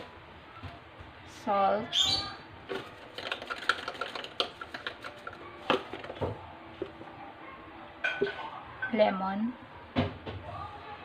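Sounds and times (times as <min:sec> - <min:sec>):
salt rattling from a shaker: 0:02.7 - 0:06.2.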